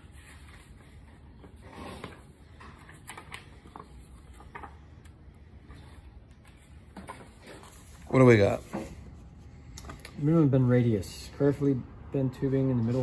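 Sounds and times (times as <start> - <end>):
paper pages rustling: 0.0 - 8.2.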